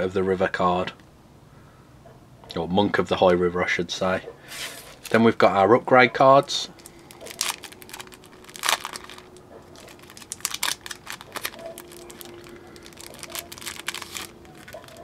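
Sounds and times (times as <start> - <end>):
plastic wrapper crinkling: 4.7 - 5.2, 6.7 - 15.0.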